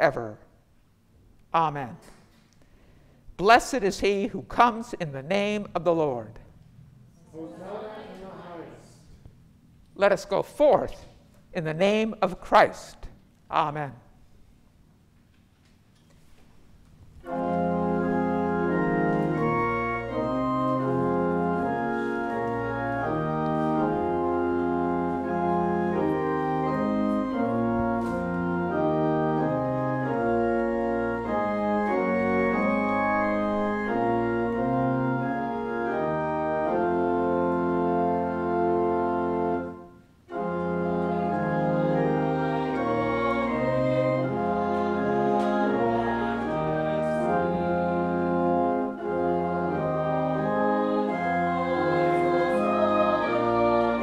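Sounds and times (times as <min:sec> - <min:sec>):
church organ playing a hymn: 0:17.2 - 0:54.0.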